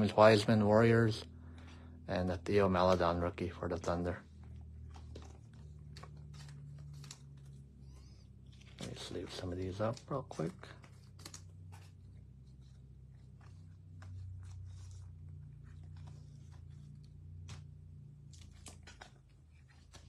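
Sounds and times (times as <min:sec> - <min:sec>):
steady low hum: 0:00.0 - 0:20.0
plastic sleeves rustling: 0:02.5 - 0:20.0.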